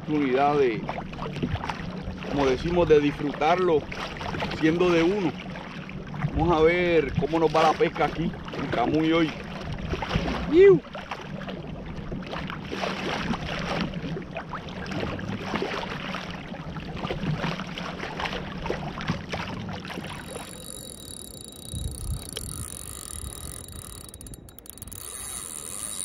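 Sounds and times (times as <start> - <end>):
water sloshing against hull: 0.0 - 26.0
wind on microphone: 20.0 - 26.0.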